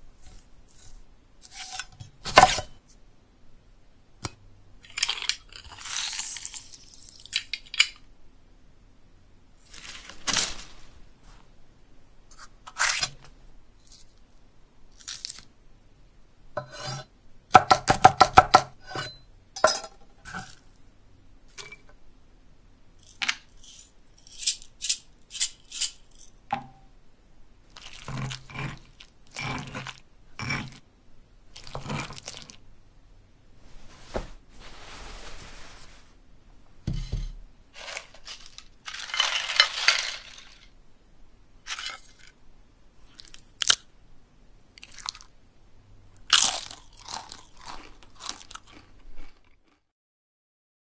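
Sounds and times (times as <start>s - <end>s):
stone pestle crunching and scraping: 27.7s - 30.8s, 31.6s - 32.6s.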